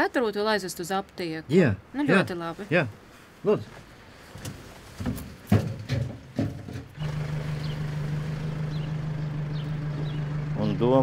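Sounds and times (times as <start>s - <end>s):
van engine humming: 6.2s - 11.0s.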